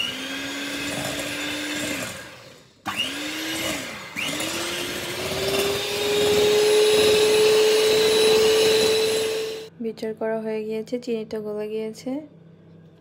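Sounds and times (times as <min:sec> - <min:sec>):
electric hand mixer whine: 0:00.0 - 0:09.7.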